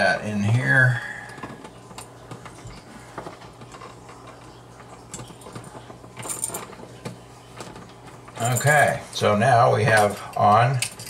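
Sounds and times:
small metallic clicks and rattles: 1.3 - 9.0, 9.9 - 11.0.

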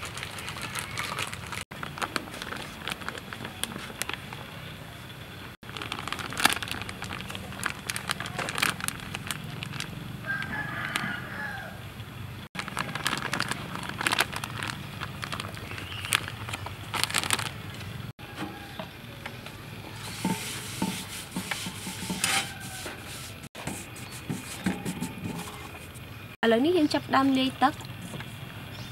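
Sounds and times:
plastic bag rustling: 0.0 - 4.4, 5.6 - 11.3, 12.6 - 18.1
flour pattering: 5.6 - 11.3, 12.6 - 17.7
rooster crowing: 10.2 - 11.9, 18.2 - 19.2, 22.1 - 23.4.

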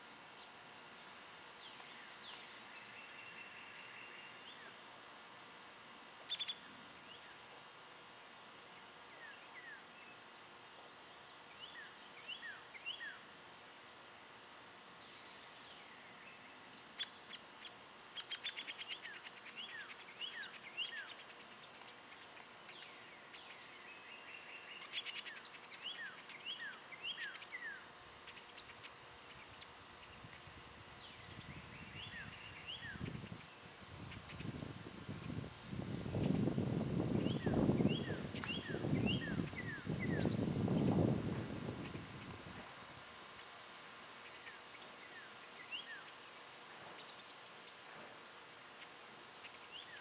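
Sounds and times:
birds chip calls: 6.3 - 7.7, 15.1 - 42.6, 43.2 - 47.8, 48.4 - 50.0.

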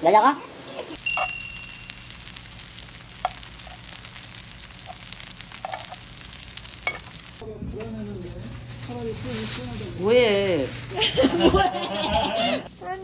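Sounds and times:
food sizzling on a griddle: 1.0 - 7.4.

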